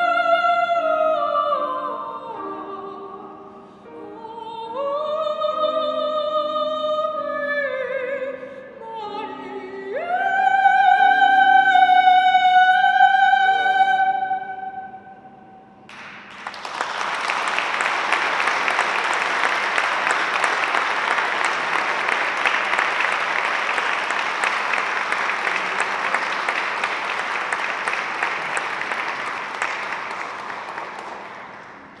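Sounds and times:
audience applauding: 15.9s - 32.0s.

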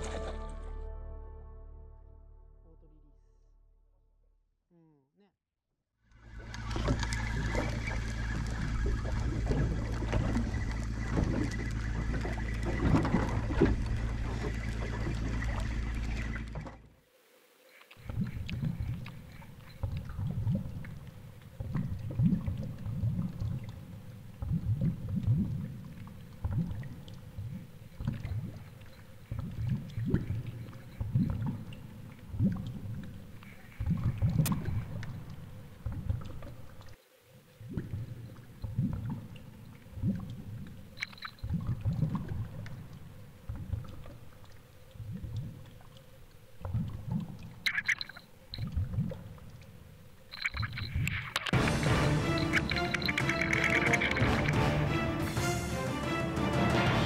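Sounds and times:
wind: 6.0s - 56.0s
muffled underwater water rushing: 6.1s - 57.0s
water noise: 6.1s - 57.0s.

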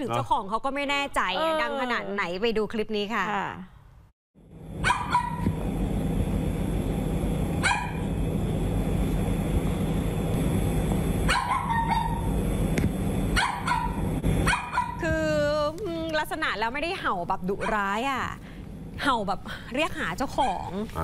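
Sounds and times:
low background hum: 4.4s - 21.0s
small dog barking: 4.8s - 5.6s, 7.6s - 8.0s, 11.3s - 12.2s, 13.3s - 15.0s.

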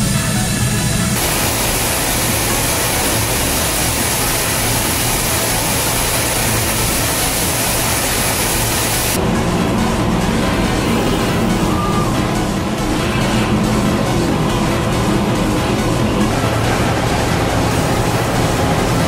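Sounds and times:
milling machine cutting steel: 1.2s - 9.2s.

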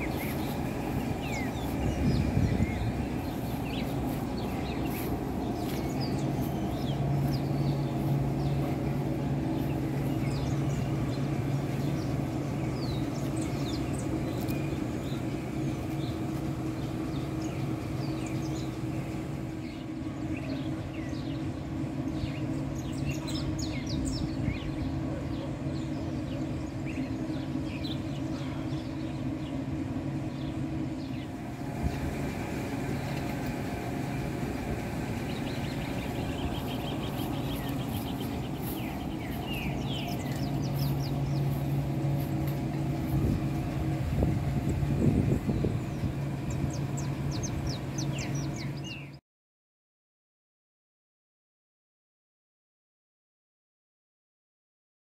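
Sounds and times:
bird chirps: 0.0s - 21.5s, 32.9s - 49.2s
low machine hum: 0.0s - 49.2s.

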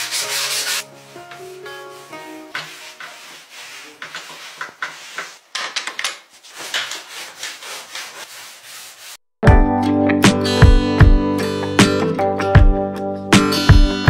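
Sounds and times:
gloved hand rubbing wood: 0.0s - 5.5s, 6.2s - 9.2s.

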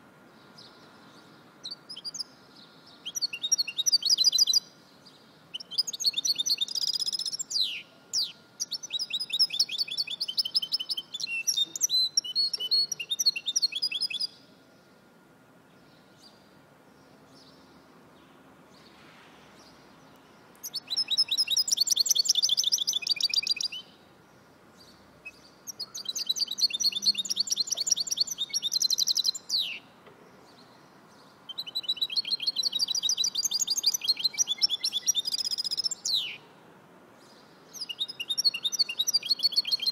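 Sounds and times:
finch singing fast trills: 3.0s - 4.7s, 5.5s - 14.4s, 20.6s - 23.9s, 25.2s - 29.8s, 31.5s - 36.4s, 37.7s - 39.9s.

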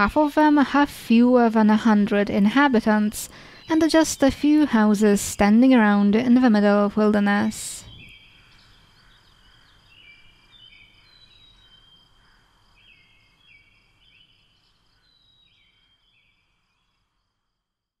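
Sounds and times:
bird chirps: 7.1s - 17.0s.

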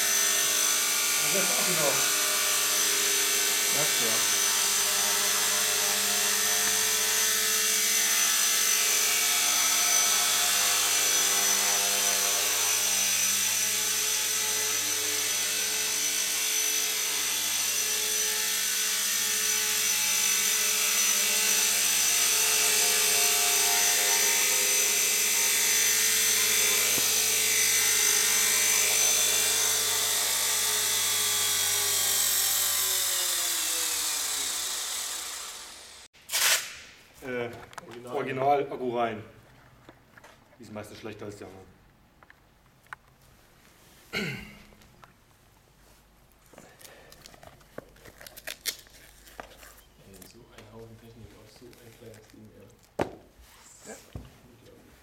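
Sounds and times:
rc helicopter whine and buzz: 0.0s - 36.1s.

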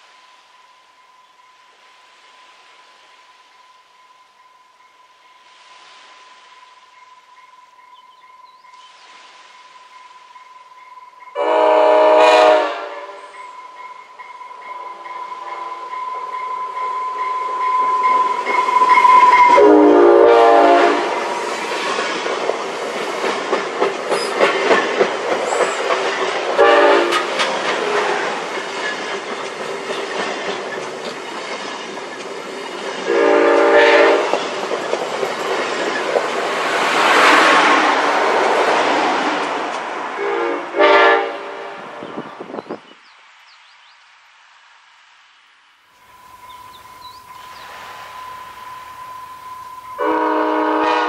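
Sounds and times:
train horn blasts: 11.3s - 13.4s, 16.8s - 21.3s, 26.5s - 28.4s, 33.1s - 34.4s, 40.2s - 42.0s, 48.1s - 51.0s
train wheels clacking: 13.2s - 19.7s, 20.6s - 39.9s.

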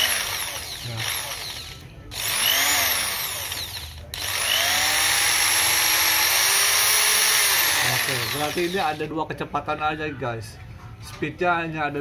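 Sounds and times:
electric drill motor whine: 0.0s - 9.0s.

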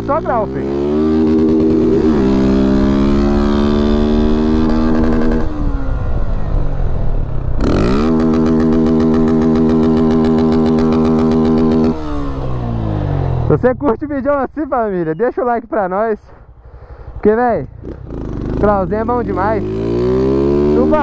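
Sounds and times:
loud motorcycle engine revving: 0.0s - 6.3s, 7.6s - 13.9s, 17.7s - 21.0s.

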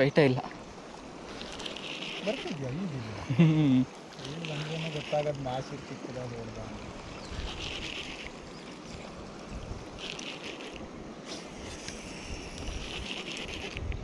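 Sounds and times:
wind buffeting microphone: 5.5s - 10.1s, 10.8s - 14.0s
short hissing bursts: 9.9s - 13.8s.

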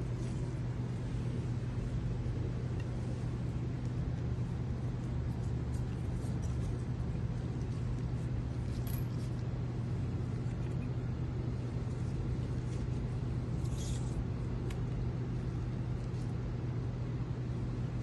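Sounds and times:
low machine hum: 0.0s - 18.0s.

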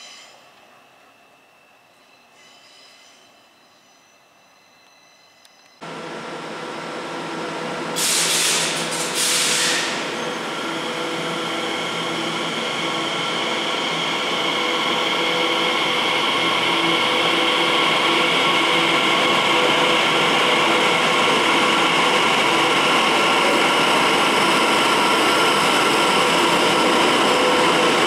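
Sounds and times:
train traction whine: 0.0s - 28.0s
sharp air hisses: 8.0s - 10.2s.

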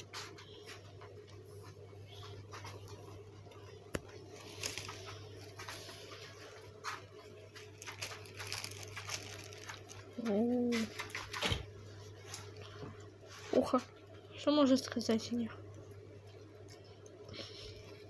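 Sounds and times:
steady low hum: 0.0s - 18.0s
plastic bag rustling: 2.1s - 13.8s.

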